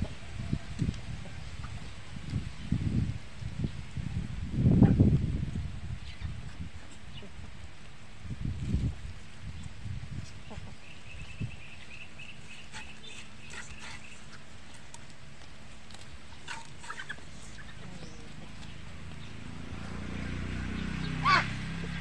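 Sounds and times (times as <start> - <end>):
ducks and chickens calling: 0.0 - 2.0, 10.2 - 15.0, 15.9 - 20.1.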